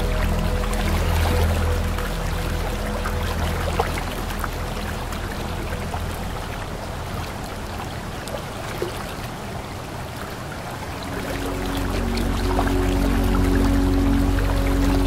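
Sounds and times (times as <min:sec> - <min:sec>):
low humming drone: 0:00.0 - 0:08.7, 0:10.8 - 0:15.0
waterfall rushing and splashing: 0:00.0 - 0:15.0.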